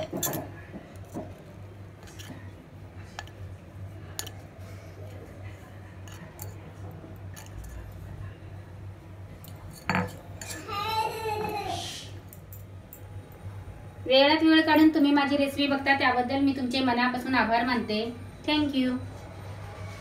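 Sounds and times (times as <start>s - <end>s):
light clinks on a ceramic plate: 9.4s - 10.6s.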